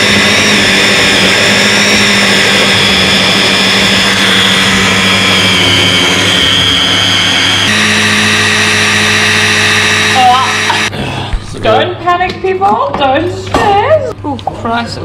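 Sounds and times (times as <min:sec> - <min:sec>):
hand blender motor whine: 0:00.0 - 0:10.9.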